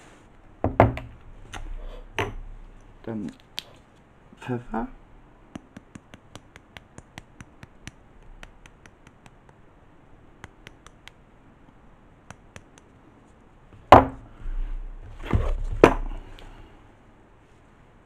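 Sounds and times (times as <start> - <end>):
loud knock: 13.9 - 14.2.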